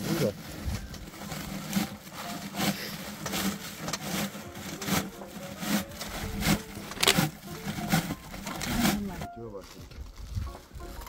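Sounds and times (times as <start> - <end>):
hand tools striking earth: 0.7 - 9.3.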